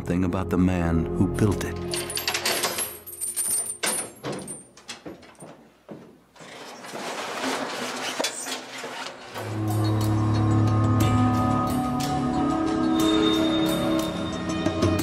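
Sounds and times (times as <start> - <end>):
keys clinking in a metal gate lock: 1.8 - 5.4
scraping rustle: 6.4 - 9.4.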